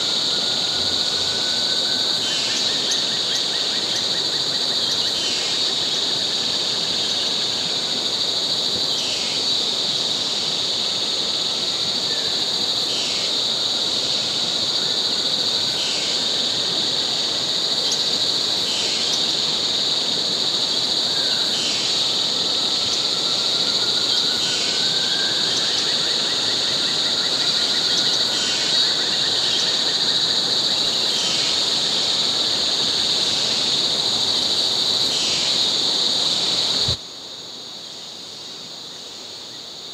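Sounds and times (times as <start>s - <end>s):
faint rising and falling whistles: 0.0s - 3.4s, 21.0s - 30.9s
insect chorus drone: 0.0s - 39.9s
repeating insect call: 0.0s - 39.9s.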